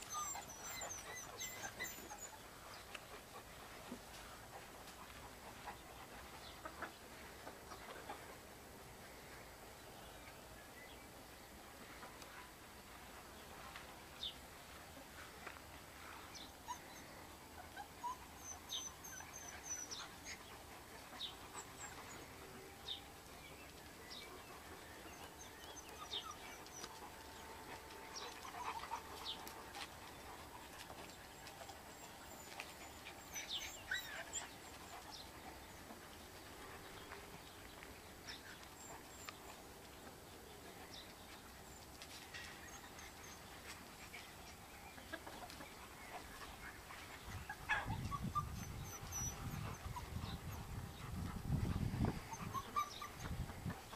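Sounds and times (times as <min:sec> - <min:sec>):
chickens calling: 0:42.4 - 0:53.9.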